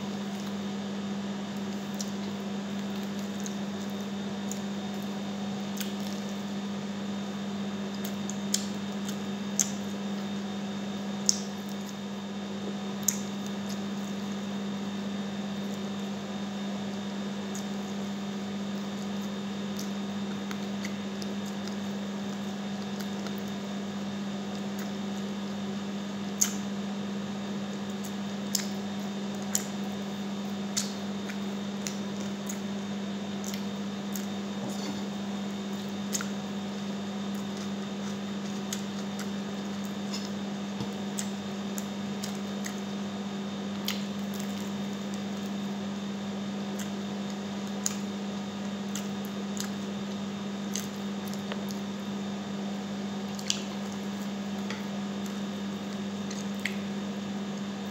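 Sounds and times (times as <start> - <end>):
steady low hum: 0.0 - 57.9
wet chewing and lip smacks: 7.9 - 10.0, 13.0 - 14.2, 18.8 - 23.6, 26.4 - 26.7, 28.0 - 29.9, 30.6 - 32.7, 33.4 - 36.6, 37.2 - 43.0, 43.7 - 45.6, 46.7 - 51.9, 53.3 - 56.9.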